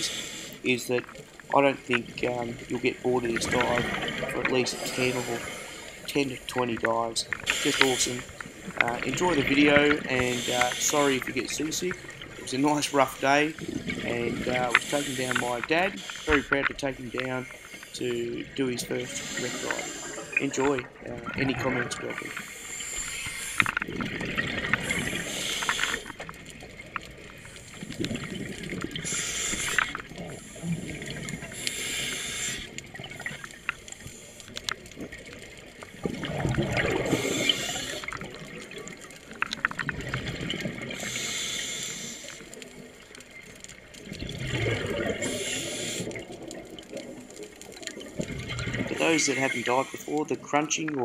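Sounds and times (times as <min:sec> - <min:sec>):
regulator inhale hiss: 0:00.0 - 0:00.6, 0:04.8 - 0:06.1, 0:07.4 - 0:08.6, 0:14.7 - 0:17.9, 0:19.1 - 0:20.4, 0:22.3 - 0:23.8, 0:24.8 - 0:26.1, 0:29.0 - 0:30.8, 0:31.5 - 0:32.8, 0:37.1 - 0:38.1, 0:41.0 - 0:42.5, 0:45.3 - 0:46.2
crackling clicks: 0:00.0 - 0:51.0
gurgling exhaust bubbles: 0:00.6 - 0:05.5, 0:06.1 - 0:22.4, 0:36.0 - 0:39.0, 0:44.0 - 0:50.6.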